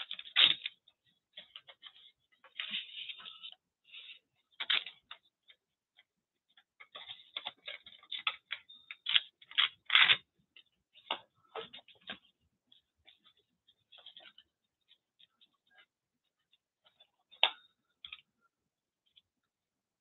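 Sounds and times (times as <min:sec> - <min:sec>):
paper crinkling: 0:00.0 - 0:05.6.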